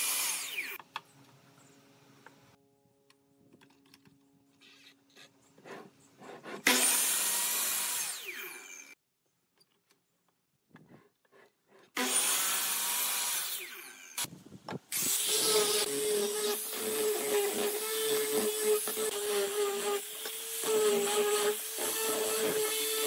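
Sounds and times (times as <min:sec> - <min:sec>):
miter saw cutting wood: 0:00.0 - 0:00.8, 0:05.6 - 0:09.0, 0:11.9 - 0:14.3, 0:14.9 - 0:23.0.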